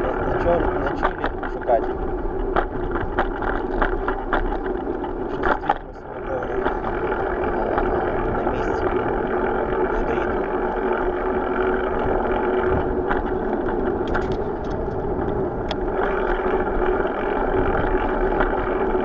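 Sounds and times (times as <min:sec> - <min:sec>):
bicycle clicks and rattles: 0:00.0 - 0:19.0
road noise: 0:00.0 - 0:19.0
wind rumble: 0:00.0 - 0:19.0.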